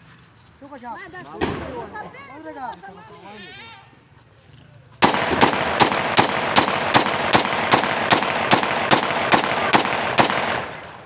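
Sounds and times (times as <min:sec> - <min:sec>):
pistol shots: 0:05.0 - 0:11.0.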